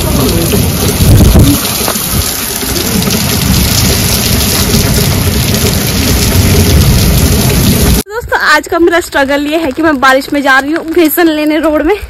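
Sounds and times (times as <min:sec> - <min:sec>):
heavy rain on concrete: 0:00.0 - 0:08.1.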